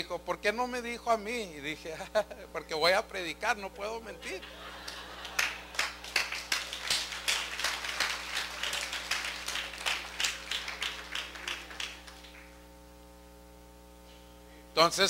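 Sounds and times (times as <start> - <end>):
congregation clapping: 4.2 - 12.6.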